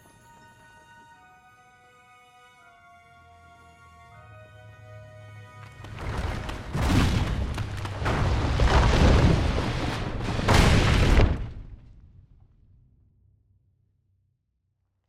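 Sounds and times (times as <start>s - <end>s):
deep rumbling crash with booms: 6.1s - 12.5s.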